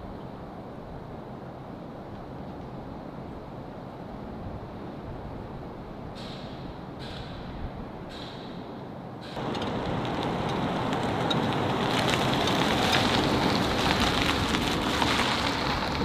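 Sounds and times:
truck and trailer passing: 0:09.2 - 0:16.0.

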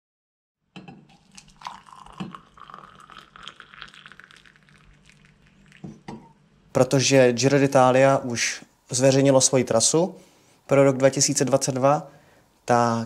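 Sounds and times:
hot water pouring into a mug: 0:01.1 - 0:06.2.

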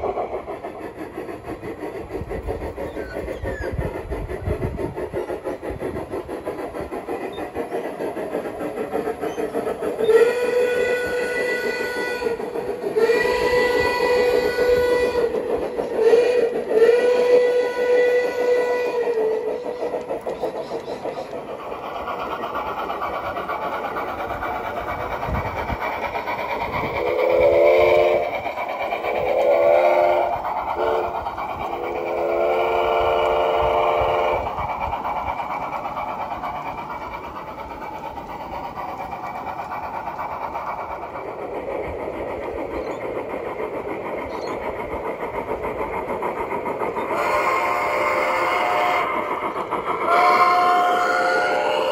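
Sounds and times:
locomotive chuff and wheel noise: 0:00.0 - 0:51.9
lower multi-tone whistle: 0:09.3 - 0:21.4, 0:27.0 - 0:28.3, 0:29.3 - 0:31.2, 0:47.0 - 0:49.2, 0:50.1 - 0:51.9
steam whistle: 0:10.0 - 0:20.0, 0:27.1 - 0:28.3, 0:29.3 - 0:31.2, 0:32.0 - 0:34.5, 0:47.1 - 0:49.2, 0:50.0 - 0:51.9.

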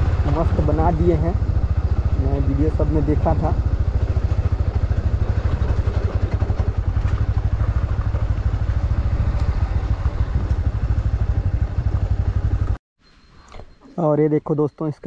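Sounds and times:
motorcycle engine running: 0:00.0 - 0:12.8
road and wind noise: 0:00.0 - 0:12.8.

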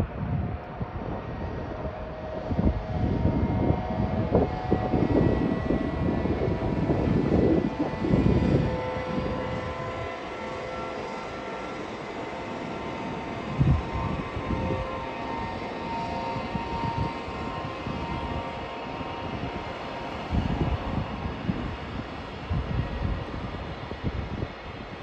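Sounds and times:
steady whining tones: 0:00.0 - 0:25.0.

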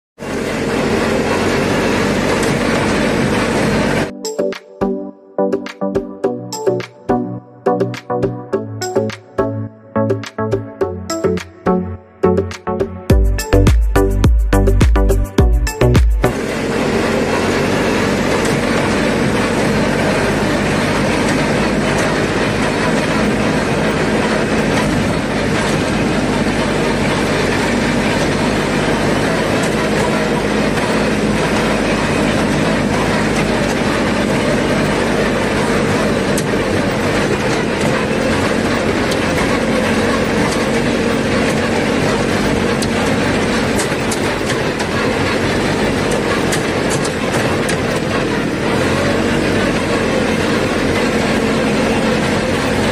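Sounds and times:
powder duster blower rushing air: 0:00.2 - 0:04.1, 0:16.2 - 0:52.9
tractor engine running: 0:00.2 - 0:52.9.

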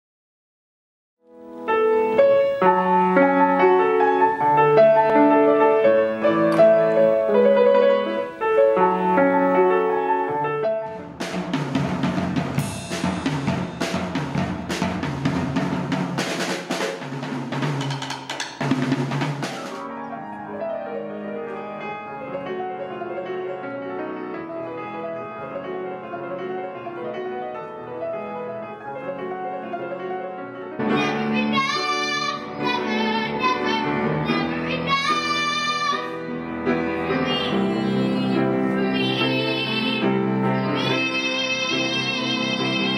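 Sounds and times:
grand piano playing: 0:01.2 - 0:42.9
drum kit: 0:08.5 - 0:20.0
girl singing into a microphone: 0:30.9 - 0:36.2, 0:37.1 - 0:42.9.

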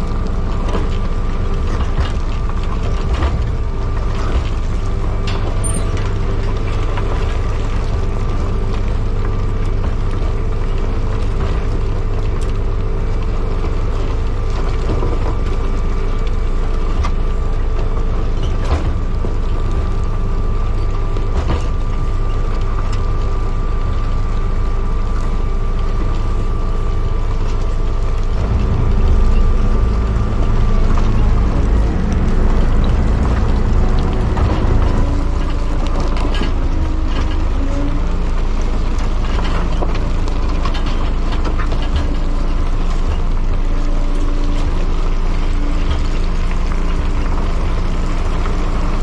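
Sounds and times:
diesel engine running: 0:00.0 - 0:49.0
high whine: 0:25.0 - 0:42.5.

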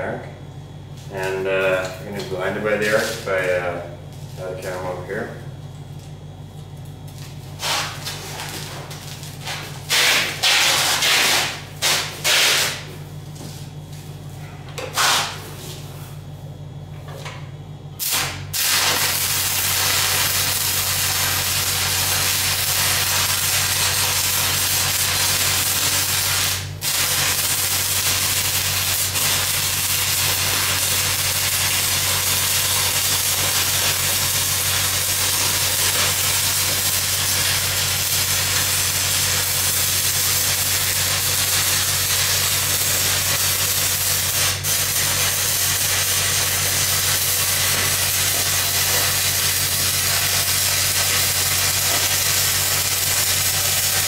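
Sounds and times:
welding arc crackling: 0:07.0 - 0:12.9, 0:18.0 - 0:54.0
welder engine humming: 0:18.0 - 0:54.0.

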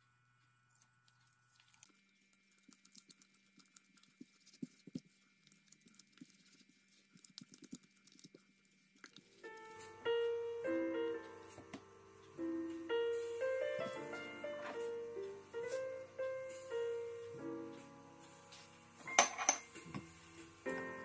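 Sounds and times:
wet squelches of batter mixing: 0:00.5 - 0:09.8
piano music: 0:09.3 - 0:21.0.

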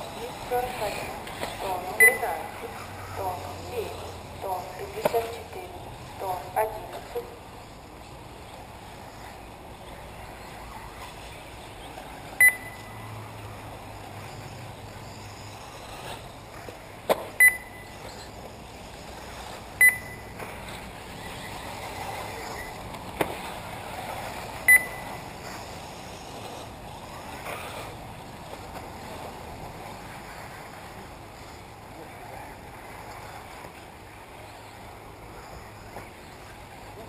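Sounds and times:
background noise: 0:00.0 - 0:37.0
short high electronic beeps: 0:02.0 - 0:02.3, 0:12.4 - 0:13.0, 0:17.4 - 0:18.0, 0:19.8 - 0:20.3, 0:24.7 - 0:25.2.

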